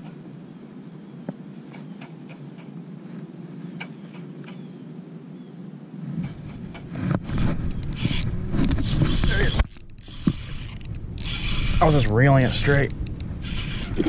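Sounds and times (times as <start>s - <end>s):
rumbling handling noise: 6.2s - 14.0s
faint irregular ticks: 7.4s - 14.0s
spinning reel being cranked: 7.4s - 14.0s.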